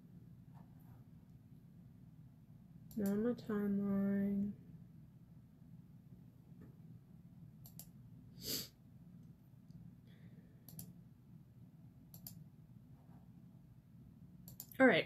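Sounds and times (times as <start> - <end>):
faint low hum: 0.0 - 15.0
computer clicks: 2.9 - 3.3, 7.6 - 8.0, 10.7 - 11.0, 12.1 - 12.4, 14.4 - 14.8.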